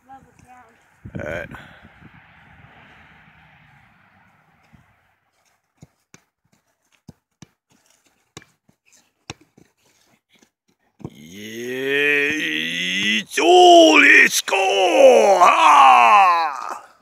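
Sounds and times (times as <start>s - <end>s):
drawn-out vocal cry: 11.1s - 17.0s.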